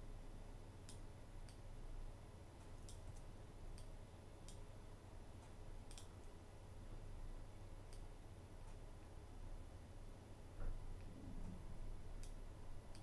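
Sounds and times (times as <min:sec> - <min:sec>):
low steady hum: 0:00.0 - 0:13.0
mouse and keyboard clicks: 0:12.2 - 0:13.0.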